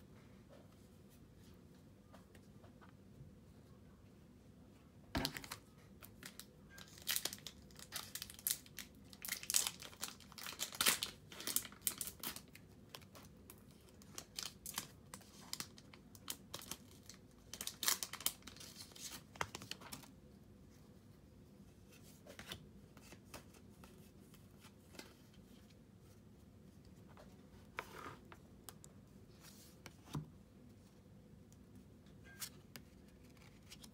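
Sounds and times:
wrapper crinkling and tearing: 0:05.2 - 0:13.1, 0:13.9 - 0:20.1.

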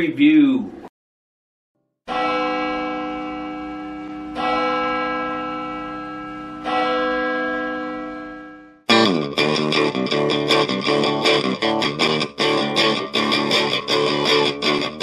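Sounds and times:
bell tolling: 0:02.1 - 0:08.8.

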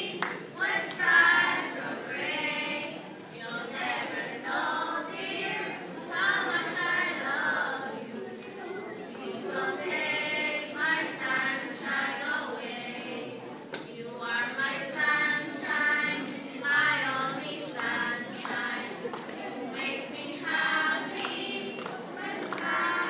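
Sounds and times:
children's choir singing: 0:00.0 - 0:23.0.

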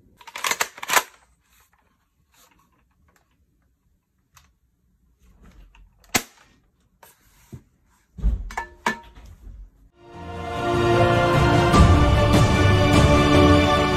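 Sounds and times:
music: 0:10.0 - 0:13.9.

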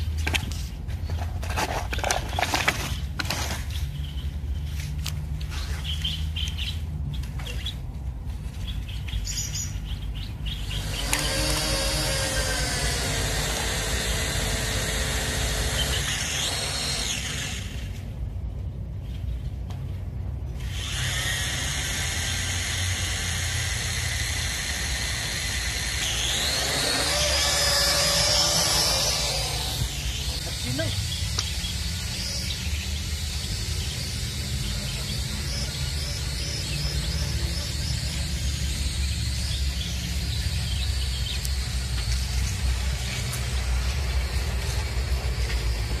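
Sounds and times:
birds chirping: 0:00.0 - 0:46.0
quadcopter motors high whine: 0:10.5 - 0:18.1, 0:20.6 - 0:46.0.

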